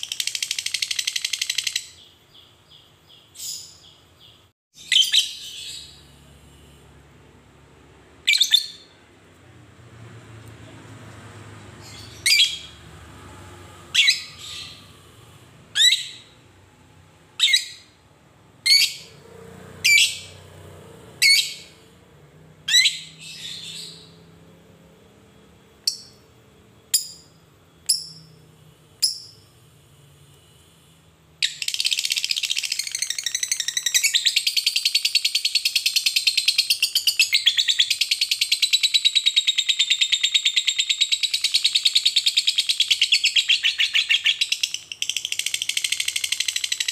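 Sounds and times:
lovebird chirping and trilling: 0.0s - 6.1s, 8.2s - 9.0s, 11.8s - 12.9s, 13.8s - 15.1s, 15.7s - 16.4s, 17.3s - 18.0s, 18.6s - 19.2s, 19.8s - 20.4s, 21.2s - 21.9s, 22.6s - 24.3s, 25.8s - 26.2s, 26.9s - 28.4s, 29.0s - 29.4s, 31.4s - 46.9s.

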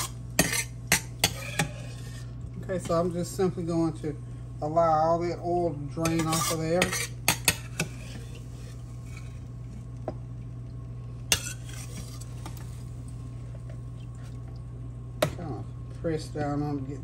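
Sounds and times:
metal spoon scraping a skillet: 0.0s - 3.0s, 6.0s - 9.5s, 11.3s - 12.6s
steady low hum: 0.0s - 17.0s.

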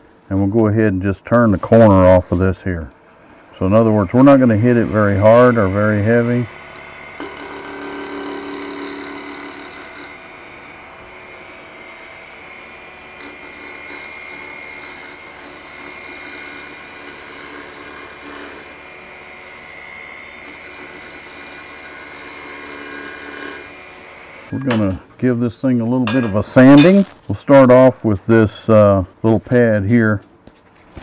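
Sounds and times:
lathe motor hum: 3.1s - 24.5s.

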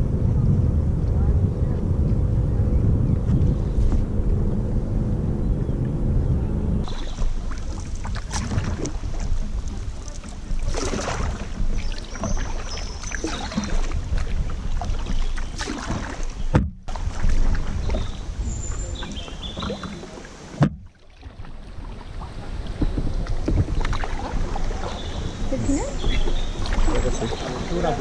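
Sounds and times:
wind rumble on microphone: 0.0s - 28.0s
paddle splashing in water: 6.8s - 28.0s.

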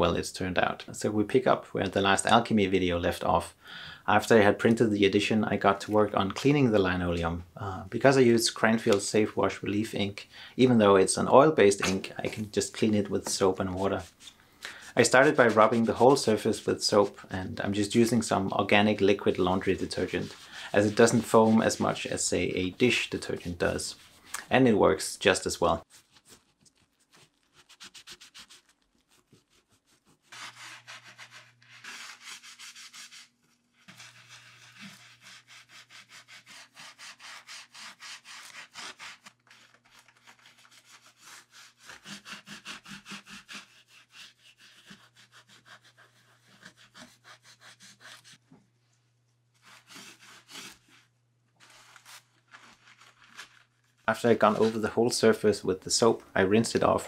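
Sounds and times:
gloved hand scrubbing block: 11.8s - 22.3s, 25.8s - 39.4s, 40.2s - 48.4s, 49.6s - 55.0s.

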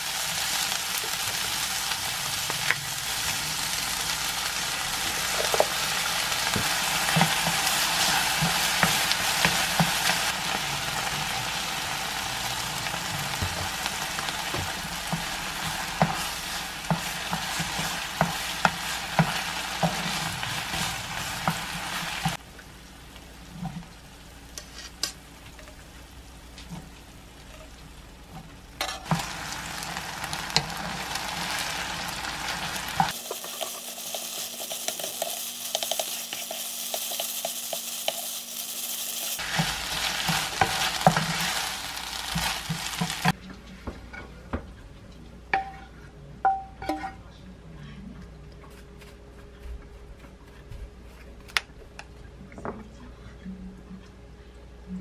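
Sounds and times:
sauce sizzling in frying pan: 0.0s - 43.4s.

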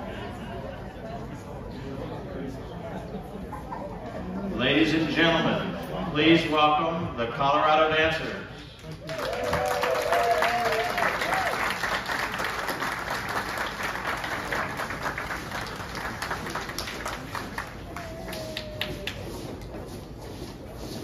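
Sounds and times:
audience applauding: 8.8s - 19.4s.

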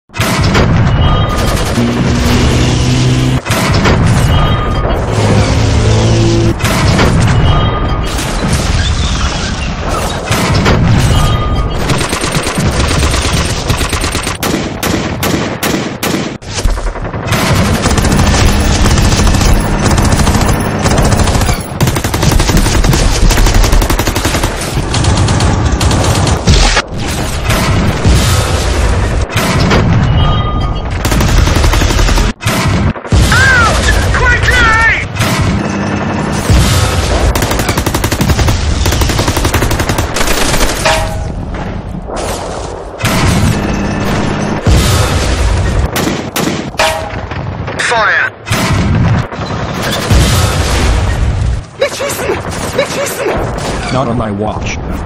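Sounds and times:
automatic gunfire bursts: 17.3s - 26.5s, 37.3s - 40.8s.

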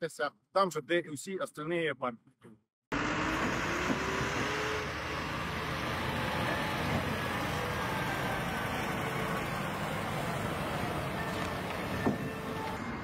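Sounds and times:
crane engine running: 2.9s - 13.0s
street noise: 2.9s - 13.0s.

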